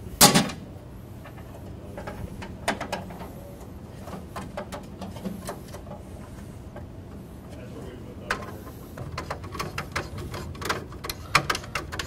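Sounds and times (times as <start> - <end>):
screwdriver tapping metal panel: 9.1 - 12.0.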